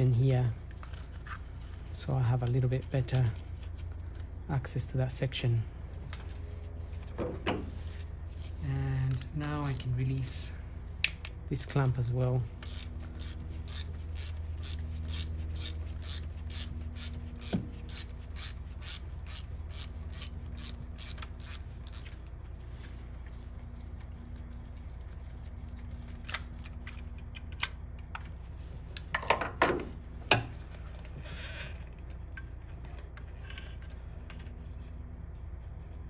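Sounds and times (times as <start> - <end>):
ratchet wrench clicking: 12.6 - 22.2.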